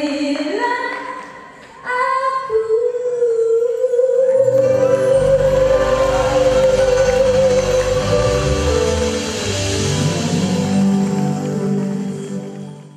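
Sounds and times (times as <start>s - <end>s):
woman singing a ballad: 0.0s - 9.4s
band accompaniment: 4.8s - 12.9s.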